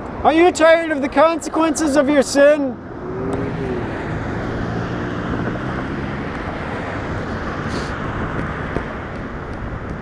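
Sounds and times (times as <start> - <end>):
cars and trucks passing: 0.0 - 10.0
wind on microphone: 2.9 - 10.0.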